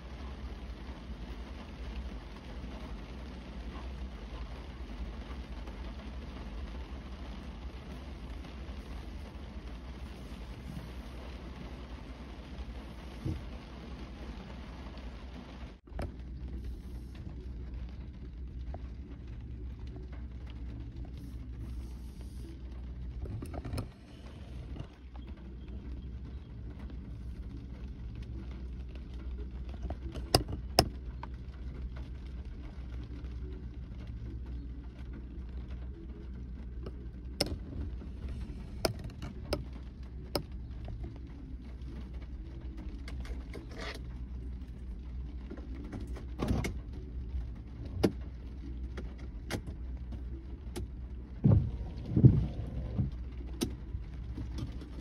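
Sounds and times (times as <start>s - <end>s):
raindrops tapping on car roof: 0.0s - 55.0s
steady low hum: 0.0s - 55.0s
low thumps: 51.3s - 53.4s.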